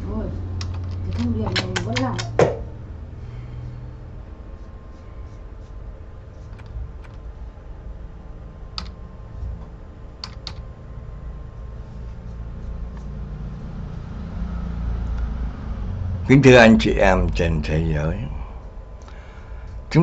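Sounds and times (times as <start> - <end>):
low room hum with tone: 0.0 - 20.0.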